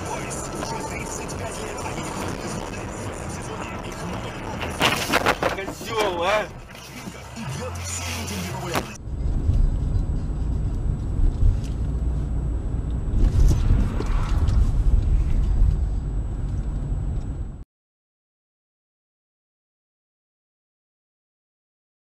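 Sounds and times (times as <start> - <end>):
car engine and tyres rumbling: 0.0 - 17.6.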